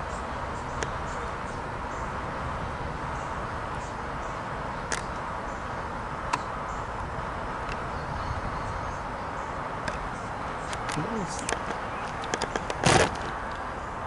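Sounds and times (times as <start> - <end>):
sharp clicks: 10.7 - 13.6.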